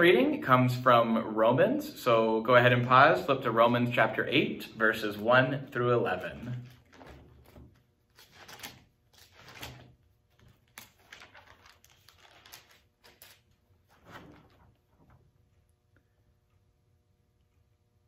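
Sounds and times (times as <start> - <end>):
book pages rustling: 6.0 - 15.1.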